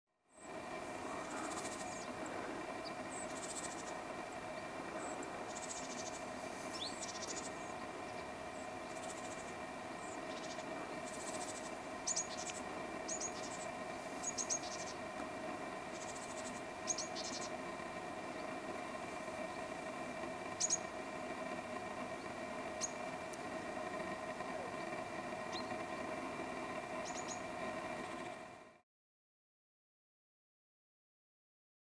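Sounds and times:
faint steady hum: 0:00.2 - 0:28.8
insect chirring: 0:01.1 - 0:04.1, 0:05.3 - 0:08.2, 0:08.9 - 0:15.0, 0:15.9 - 0:17.6, 0:20.5 - 0:21.0.

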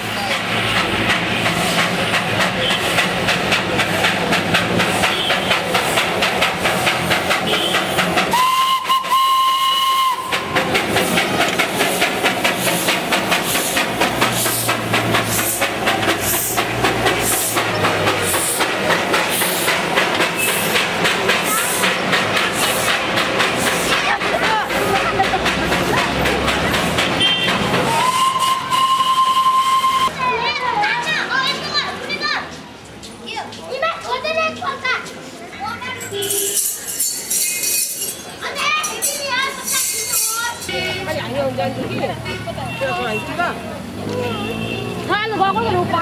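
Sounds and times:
steam locomotive exhaust beating: 0:00.0 - 0:30.2
steam whistle blasts: 0:07.5 - 0:10.6, 0:27.2 - 0:30.1.

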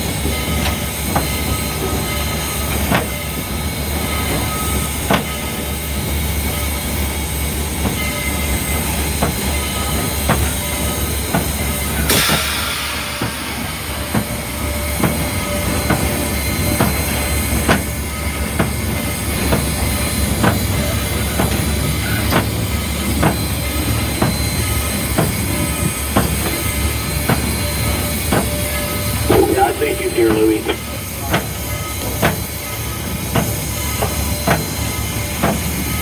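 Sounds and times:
steam locomotive rumble: 0:00.0 - 0:36.0
steam hiss: 0:11.9 - 0:17.3.

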